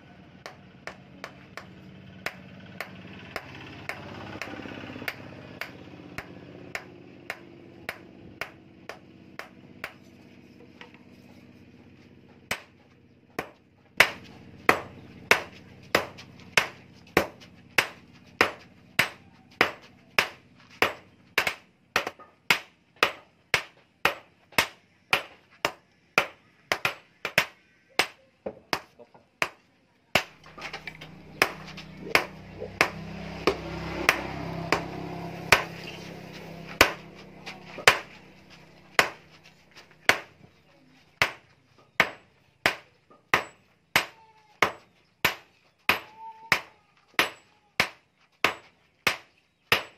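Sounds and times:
hammer striking hot steel: 30.2s - 38.2s
low hum: 30.2s - 41.6s.

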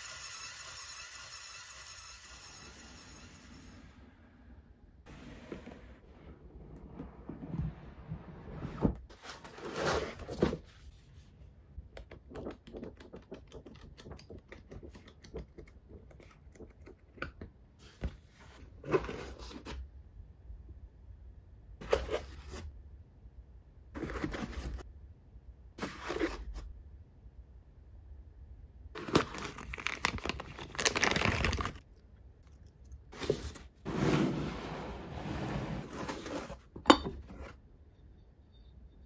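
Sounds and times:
rustling scrapes: 7.2s - 11.4s, 33.1s - 36.7s
booklet pages riffling: 29.0s - 31.8s
cardboard box rubbing and sliding: 33.2s - 36.7s.

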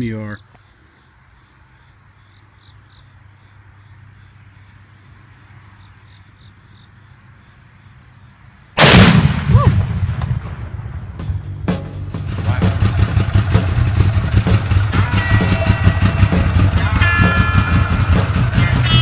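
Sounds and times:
rifle shot with exploding target: 8.8s - 11.1s.

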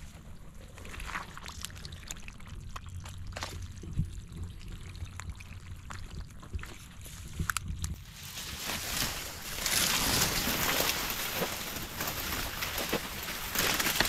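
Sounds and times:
dry stems crackling: 7.4s - 14.0s.

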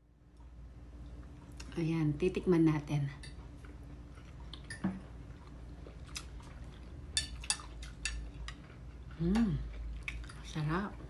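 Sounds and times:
person chewing food: 3.3s - 10.6s.

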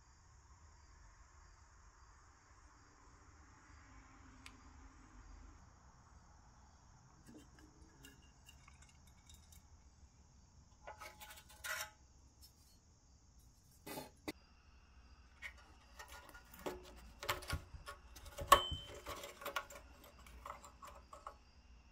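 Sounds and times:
metal rattling clatter: 7.3s - 9.8s
metal toy parts clinking: 7.3s - 9.8s, 18.2s - 21.3s.

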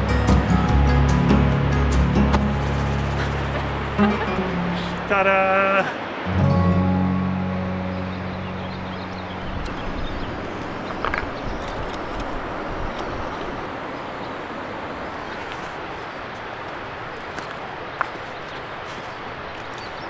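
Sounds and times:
background music: 0.0s - 5.4s, 6.3s - 10.5s
waterfall rushing: 0.0s - 20.0s.

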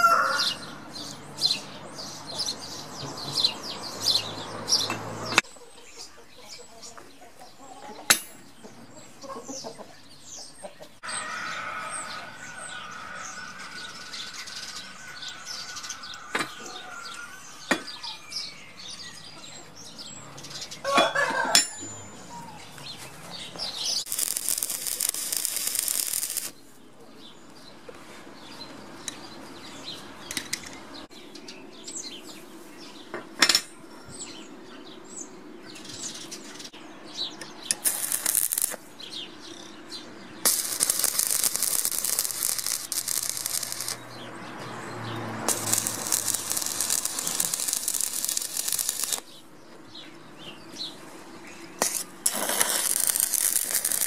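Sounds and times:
arc welding crackling: 24.0s - 26.6s, 37.7s - 38.8s, 40.4s - 44.2s, 45.2s - 49.4s, 51.8s - 54.0s.

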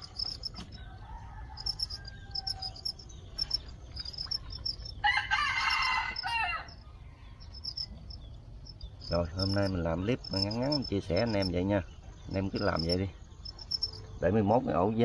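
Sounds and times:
rooster crowing: 0.0s - 3.0s, 4.9s - 7.9s
crickets chirping: 0.0s - 15.0s.

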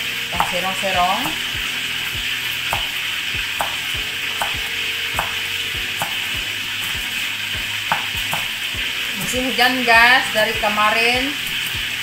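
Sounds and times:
rain hissing: 0.0s - 12.0s
cleaver chopping on wooden block: 0.4s - 0.6s, 2.7s - 3.0s, 3.6s - 5.4s, 6.0s - 6.2s, 7.9s - 8.6s.

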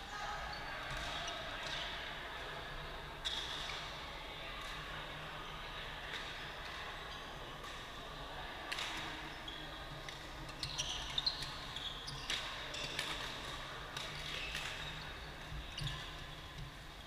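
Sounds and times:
sports shoes squeaking: 9.1s - 16.8s.

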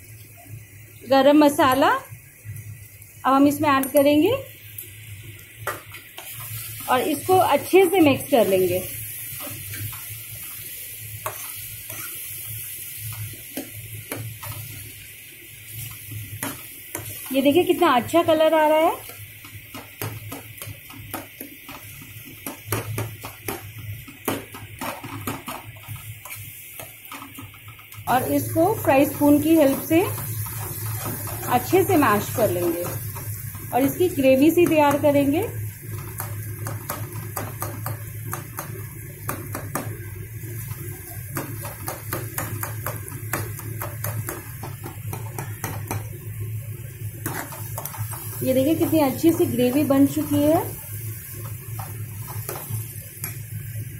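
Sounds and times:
metal spoon scraping a pan: 11.2s - 12.4s, 47.2s - 48.2s.

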